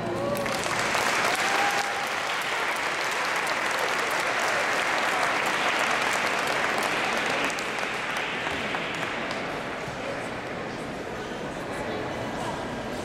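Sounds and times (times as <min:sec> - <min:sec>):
audience applauding: 0:00.2 - 0:10.4.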